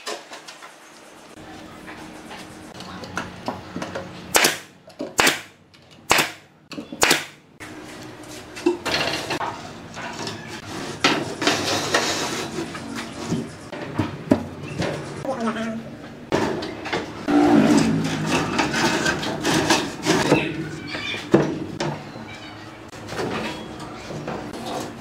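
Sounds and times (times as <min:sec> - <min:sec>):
nail gun firing: 0:04.3 - 0:07.4
plywood sheets scraping and knocking: 0:17.7 - 0:20.4.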